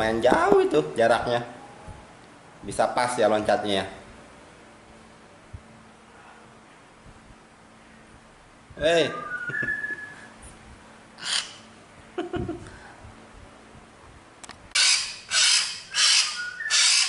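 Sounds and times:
bird whistled call: 9.1 - 10.2, 14.8 - 17.0
bird harsh rasping calls: 11.2 - 11.7, 14.8 - 17.0.

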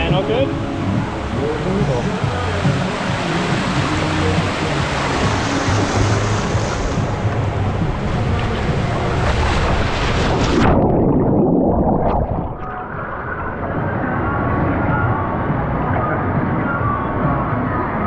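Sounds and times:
muffled underwater gurgling: 0.0 - 17.4
pool water sloshing: 0.3 - 13.7
water rushing down slide: 1.4 - 17.3.

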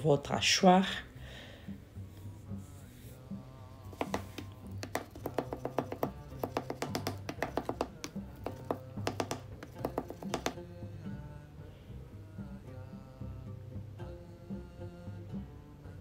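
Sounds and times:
background music: 0.0 - 16.0
knife chopping on wooden board: 4.0 - 10.6.

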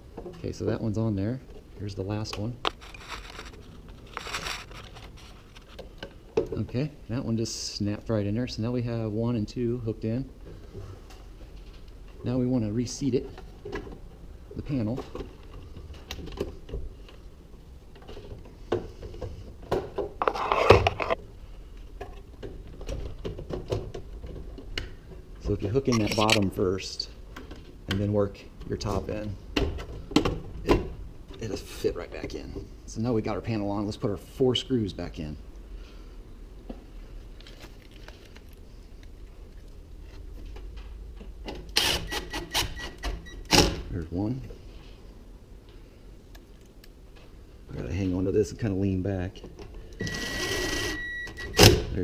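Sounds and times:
screws rustling and clicking: 2.7 - 5.8
cordless drill driving screw: 41.8 - 42.9, 50.0 - 50.9.

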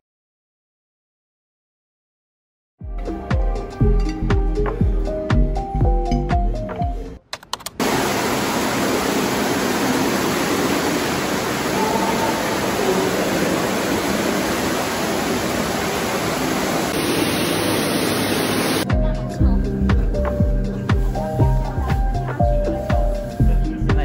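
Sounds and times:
water rushing down walkway: 7.8 - 18.9.

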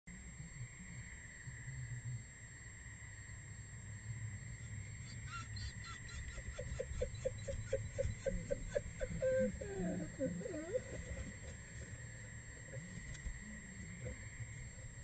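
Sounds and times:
wolves whimpering: 5.0 - 14.2.

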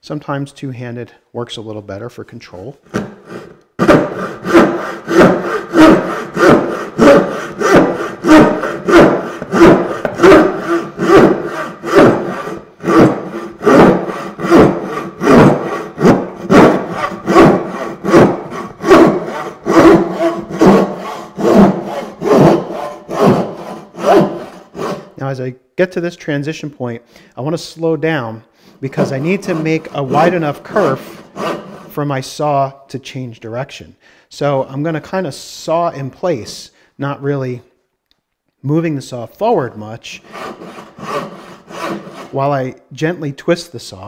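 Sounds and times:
bow saw cutting wood: 2.9 - 25.2, 28.7 - 32.0, 40.2 - 42.6.

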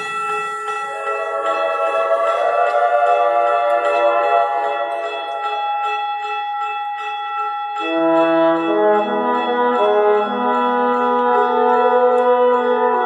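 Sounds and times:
orchestra high repeating figure: 0.0 - 13.0
low brass long held notes: 0.9 - 5.8, 7.8 - 13.0.

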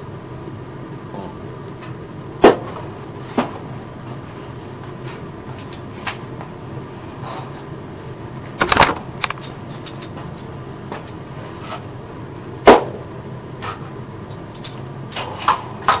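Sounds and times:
steady low hum: 0.0 - 16.0
hard parts knocking and clicking: 8.6 - 10.4, 14.5 - 14.8.

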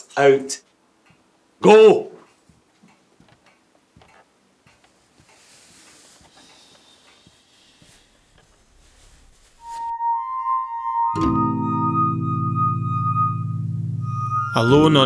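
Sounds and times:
soft hiss: 4.0 - 9.9.

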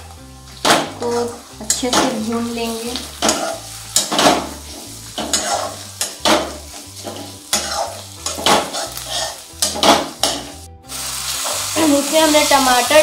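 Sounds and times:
spices sizzling in hot oil: 0.0 - 13.0
steel spatula scraping metal pan: 3.2 - 10.6.

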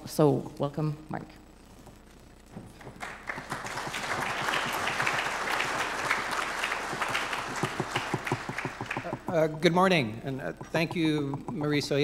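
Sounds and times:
audience applauding: 2.8 - 9.6.

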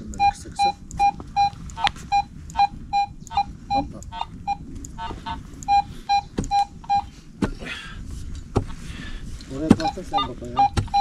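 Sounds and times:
metal detector beeping: 0.2 - 7.1, 9.8 - 11.0.

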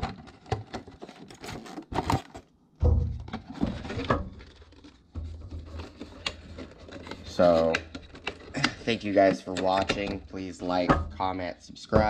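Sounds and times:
plastic sleeve crinkling: 4.3 - 10.7.

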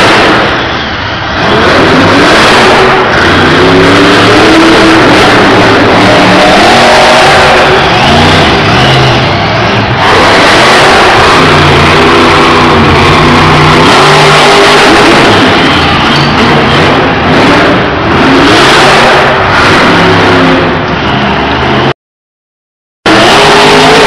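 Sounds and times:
truck engines revving: 0.0 - 22.0, 23.0 - 24.0.

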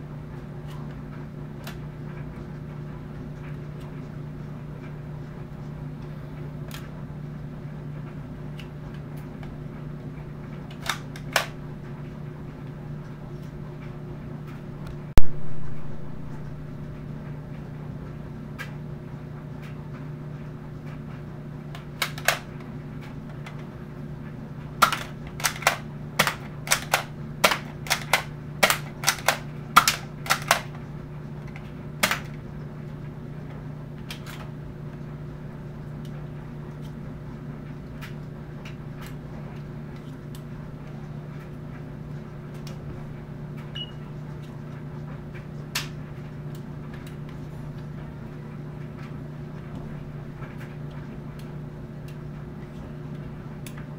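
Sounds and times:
low hum: 0.0 - 38.4
toy blaster plastic clacks: 10.7 - 11.5, 22.0 - 22.4, 24.8 - 30.8, 31.5 - 32.4.

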